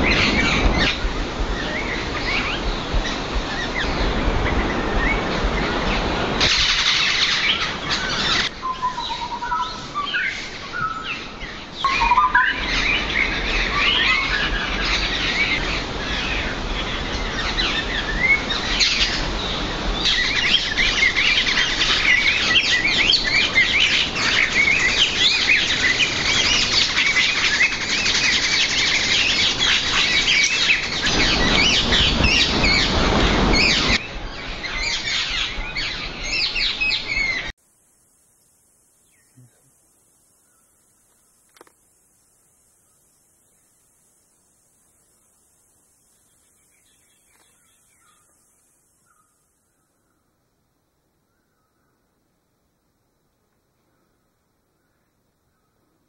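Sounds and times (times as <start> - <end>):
low rumbling noise: 0.0 - 9.8, 30.7 - 37.5
birds chirping: 0.0 - 44.2
clear whistled bird notes: 6.6 - 15.6.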